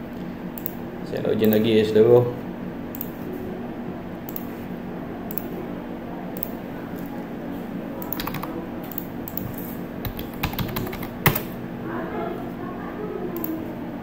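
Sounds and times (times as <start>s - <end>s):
mouse clicks: 3.0s - 3.2s, 4.3s - 4.5s, 5.3s - 5.5s
keyboard keystrokes: 8.0s - 11.6s.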